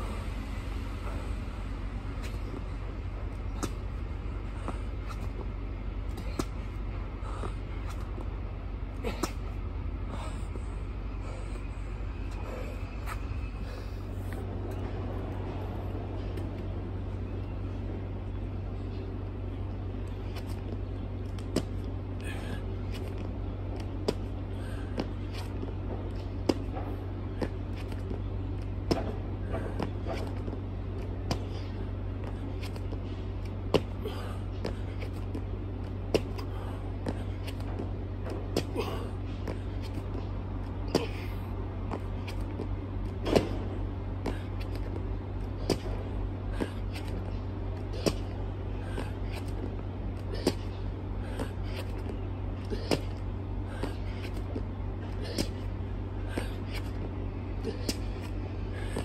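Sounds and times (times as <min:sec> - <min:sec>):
steady low hum: 0:00.0 - 0:59.0
body slapping on pavement: 0:03.5 - 0:04.0, 0:06.1 - 0:08.2, 0:09.0 - 0:09.6, 0:24.9 - 0:59.0.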